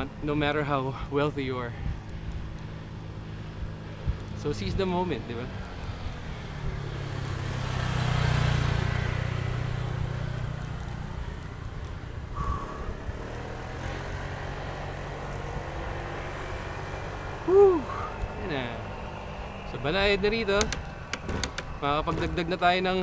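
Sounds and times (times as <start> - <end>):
vehicle engine passing: 5.0 - 11.2, 12.1 - 23.0.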